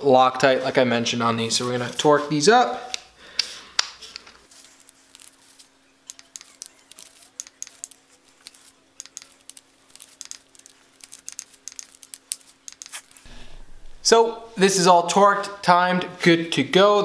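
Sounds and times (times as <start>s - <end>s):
torque wrench clicking: 6.1s - 13.0s.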